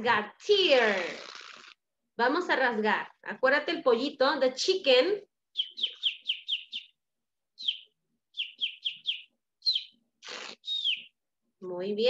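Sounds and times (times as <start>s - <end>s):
chick-like peeping: 5.6s - 6.9s, 7.6s - 10.0s, 10.6s - 11.1s.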